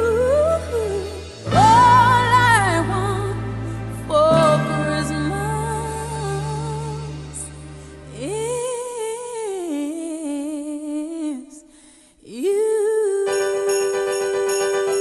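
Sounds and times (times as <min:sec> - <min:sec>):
pop band backing: 0:00.0 - 0:08.8.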